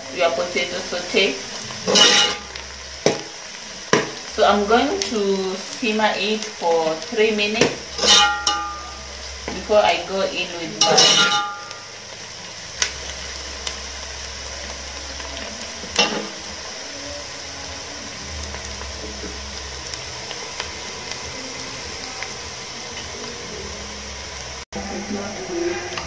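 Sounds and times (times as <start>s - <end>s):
onions sizzling in a pot: 0.0s - 26.0s
metal spoon clinking pot: 8.0s - 9.0s.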